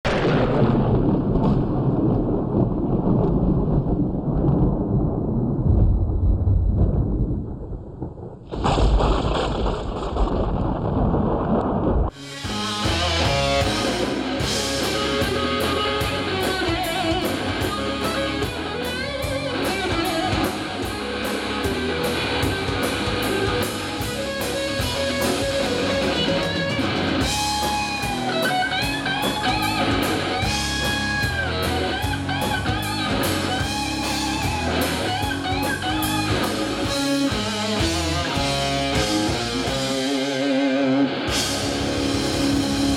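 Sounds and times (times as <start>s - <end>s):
thunder-like rumbling: 0.0s - 12.2s, 12.8s - 40.3s
lead guitar bending notes: 12.1s - 42.9s
rock band playing live: 12.1s - 42.9s.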